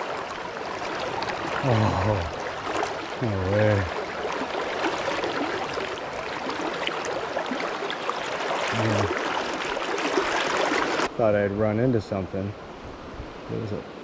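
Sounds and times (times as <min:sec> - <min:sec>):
river water flowing: 0:00.0 - 0:14.0
man humming low: 0:01.6 - 0:02.4, 0:03.2 - 0:03.9.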